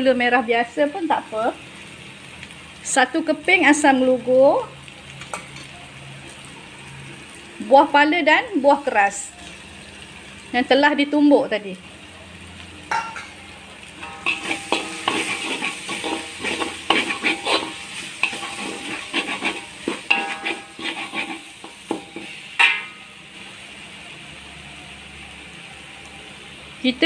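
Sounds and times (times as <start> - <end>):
paste sizzling: 0.8 - 24.4
metal spatula scraping a wok: 14.0 - 23.2.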